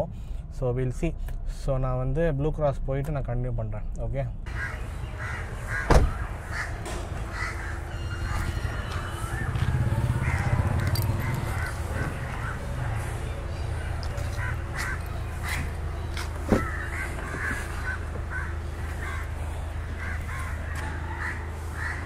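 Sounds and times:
crows cawing: 4.5 - 13.2, 14.0 - 22.0.

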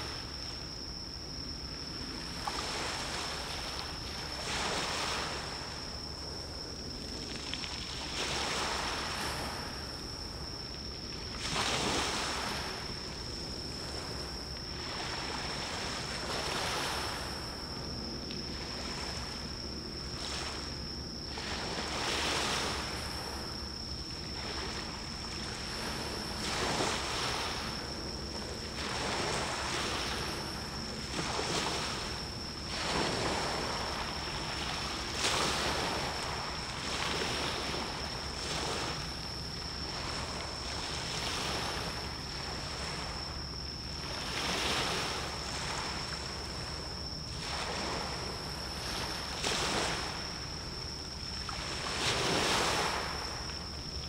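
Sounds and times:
sea waves washing in: 20.1 - 54.0.

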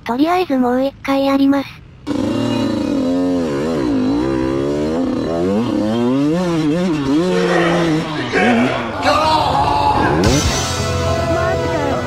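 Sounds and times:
two-stroke engine revving: 1.8 - 9.0, 10.1 - 12.0.

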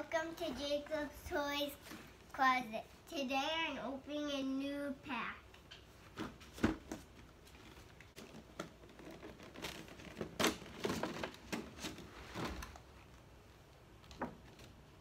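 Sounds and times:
packaging rustling and crinkling: 6.8 - 13.0.

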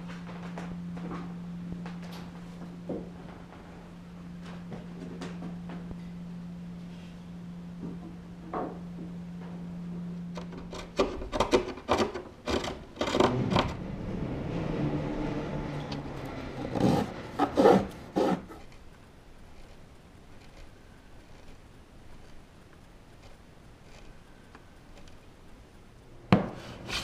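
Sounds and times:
low steady hum: 0.0 - 27.0
hand tool scraping wood: 11.0 - 18.8.

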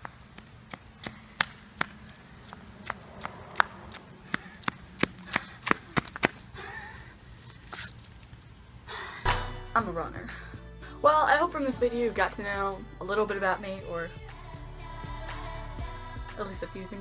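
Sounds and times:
flip-flops slapping on asphalt: 0.0 - 6.5.

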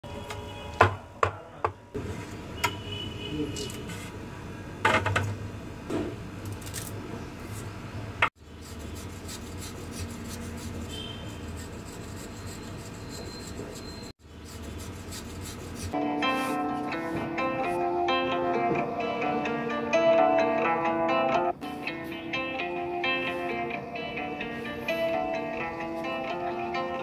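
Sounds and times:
plucked-string tune: 16.0 - 27.0.

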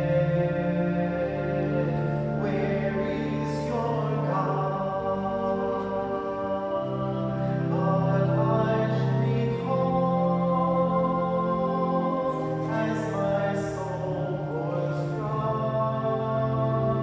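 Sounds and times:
hymn singing: 0.0 - 17.0
organ chords: 0.0 - 17.0.

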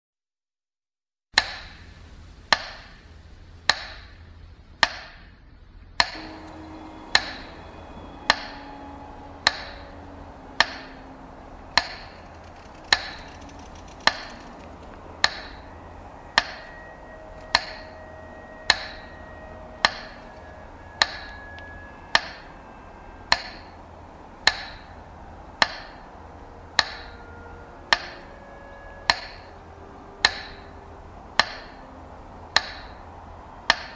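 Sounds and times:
faint held tones: 5.8 - 33.9
sharp ringing knocks: 6.0 - 23.8, 24.4 - 25.0, 25.6 - 29.6, 30.2 - 30.8, 31.4 - 31.9, 32.5 - 33.9.

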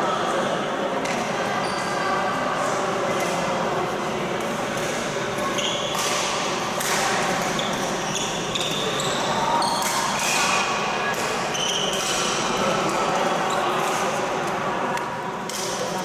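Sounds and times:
shoes squeaking on court floor: 4.7 - 6.3, 7.1 - 10.2, 11.5 - 12.2
racket hitting shuttlecock: 5.9 - 7.9.

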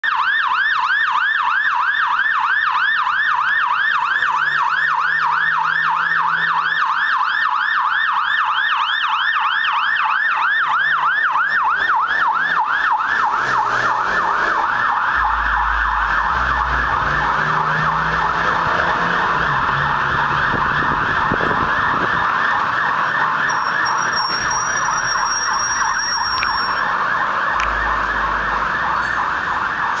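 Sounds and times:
fire truck siren yelping: 0.0 - 30.0
truck rumble passing: 11.7 - 30.0.

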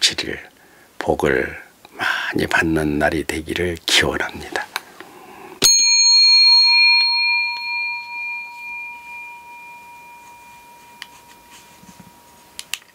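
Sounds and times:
hand bell ringing: 5.6 - 12.4.

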